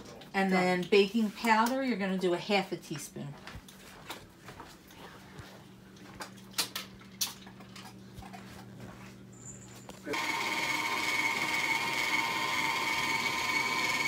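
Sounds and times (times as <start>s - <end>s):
stand mixer whining: 10.1s - 14.0s.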